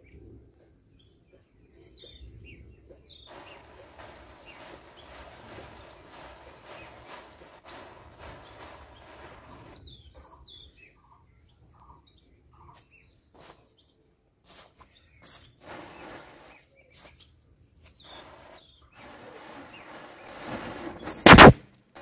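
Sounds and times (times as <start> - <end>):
small birds chirping: 0.0 - 20.4
matches crackling and fizzing: 3.3 - 9.3.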